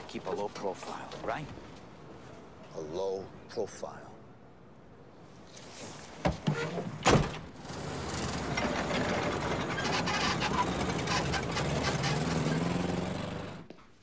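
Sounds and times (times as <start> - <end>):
car engine clattering: 7.3 - 13.8.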